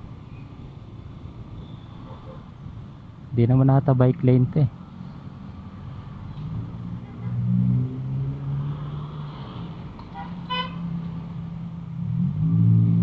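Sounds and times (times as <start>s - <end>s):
road traffic engine hum: 0.0s - 13.0s
vehicle horn toot: 10.1s - 10.8s.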